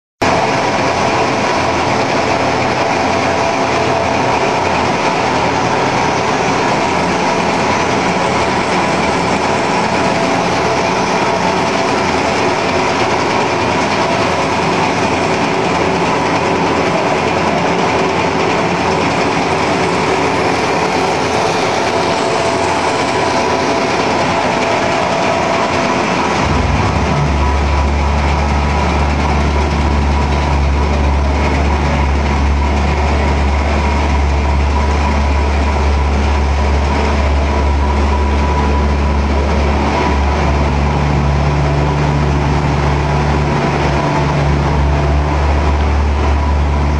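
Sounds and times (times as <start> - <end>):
deep steady hum: 0.2 - 46.9
loud machinery din: 0.2 - 46.9.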